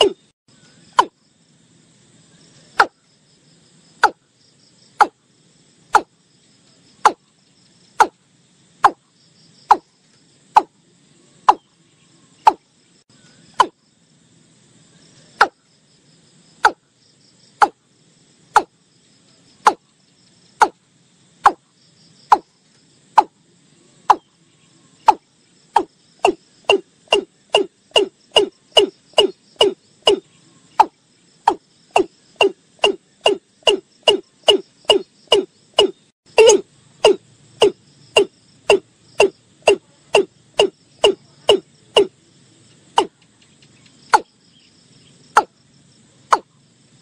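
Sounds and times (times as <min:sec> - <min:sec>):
insects chirring: 0:00.0 - 0:47.0
bird calling: 0:25.8 - 0:42.1.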